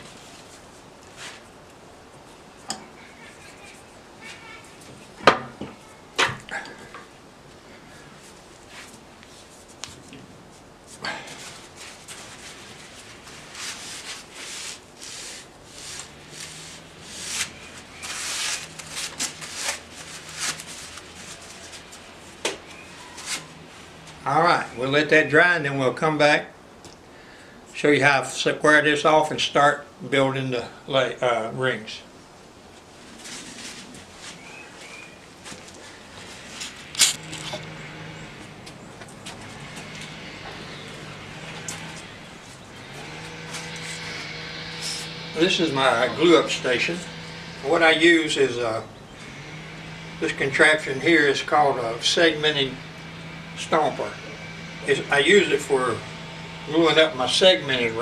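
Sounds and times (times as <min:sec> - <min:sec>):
hands rubbing on wood: 0:08.2 - 0:22.4
steady low hum: 0:29.8 - 0:58.0.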